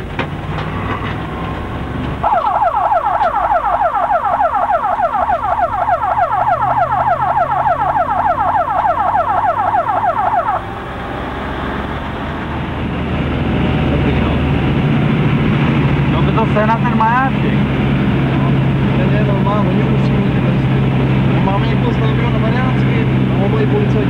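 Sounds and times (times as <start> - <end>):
vehicle engine hum: 0.0 - 24.0
ambulance siren wailing: 2.2 - 13.0.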